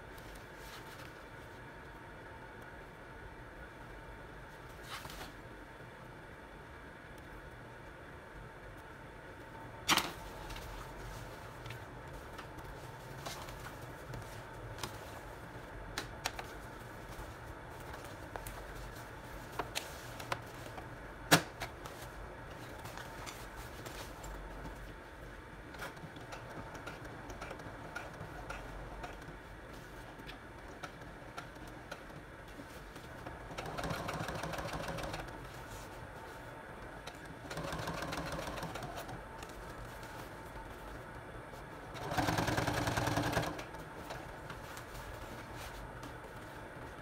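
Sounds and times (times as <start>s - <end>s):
sewing machine stitching: 33.5s - 35.3s, 37.4s - 39.1s, 41.9s - 43.8s.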